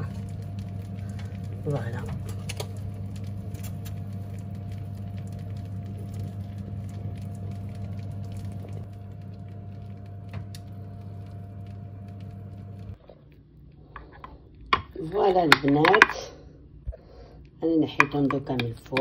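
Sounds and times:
sauce and cheese sizzling: 0.0 - 13.0
oven fan humming: 0.0 - 19.0.

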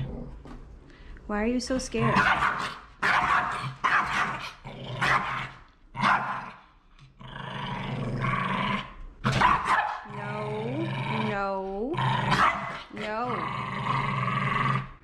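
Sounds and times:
small dog growling: 0.0 - 0.6, 7.2 - 15.0
small dog barking: 2.1 - 4.4, 9.3 - 10.1, 12.3 - 12.9.

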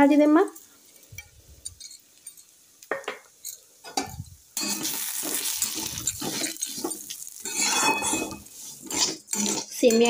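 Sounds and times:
spatula scraping metal pan: 4.0 - 10.0.

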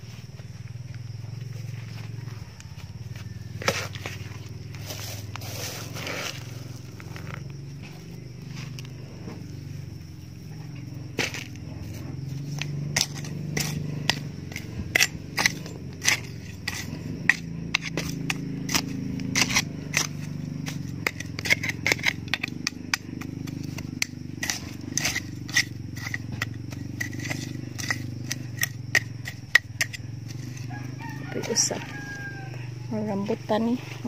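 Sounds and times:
steady low hum: 0.0 - 34.0
machete chopping into dry soil: 3.6 - 6.5, 11.2 - 11.6, 12.4 - 32.4.

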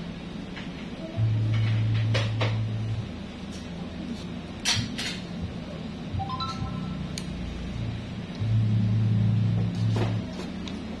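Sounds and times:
rising three-note chime: 6.2 - 7.1.

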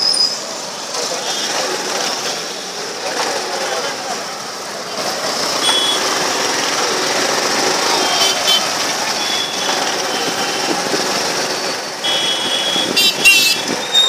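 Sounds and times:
road traffic noise: 0.0 - 14.0
short high horn beeps: 5.6 - 6.1, 12.0 - 14.0.

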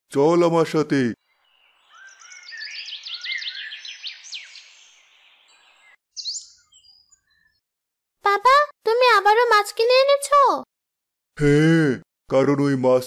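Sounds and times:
birds chirping: 0.9 - 7.6.

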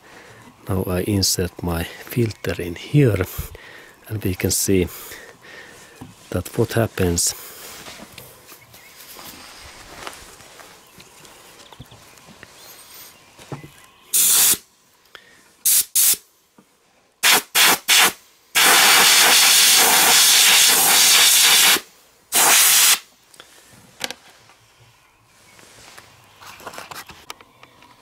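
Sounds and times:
compressed air blasts from blow gun: 14.1 - 14.6, 15.6 - 16.2, 17.2 - 23.1.

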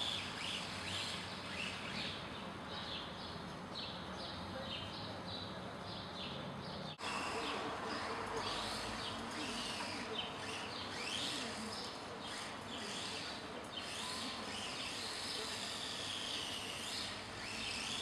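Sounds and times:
rc car motor whining: 0.0 - 2.1, 7.0 - 18.0.

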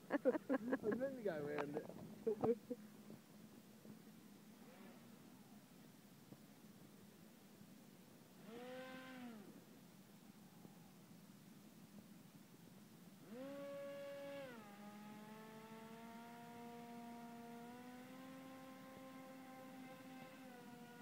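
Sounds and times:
propeller motor whine: 13.2 - 21.0.

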